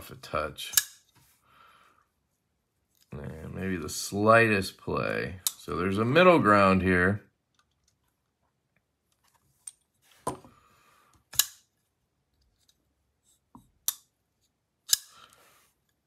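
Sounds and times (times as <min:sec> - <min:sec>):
folding knife snapping open and shut: 0:11.3 - 0:11.6, 0:14.9 - 0:15.1.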